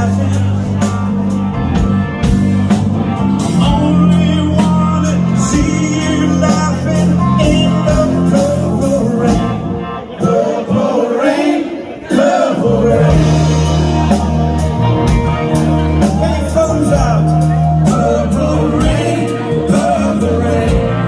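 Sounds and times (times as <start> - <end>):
man singing: 0.0 - 1.3, 3.4 - 11.3, 12.2 - 21.0
rock band playing: 0.0 - 21.0.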